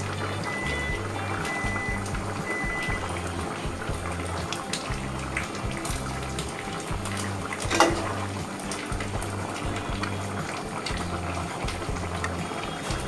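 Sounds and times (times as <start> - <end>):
curry bubbling in a pot: 0.0 - 13.0
ladle knocking against pot: 7.6 - 8.3.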